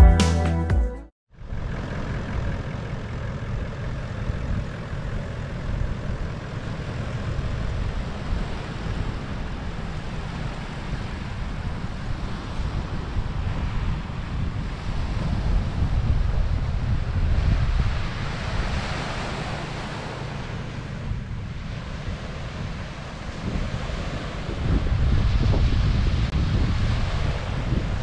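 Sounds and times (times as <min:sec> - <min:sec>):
car engine running: 0:01.4 - 0:21.4
wind buffeting microphone: 0:01.4 - 0:28.0.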